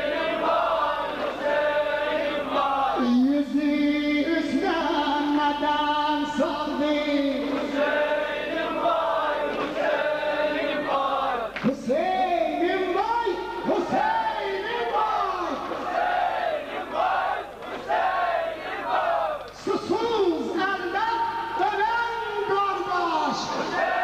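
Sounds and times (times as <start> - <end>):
group of voices chanting: 0.0 - 3.1, 7.4 - 11.5, 13.7 - 19.5, 23.3 - 24.0.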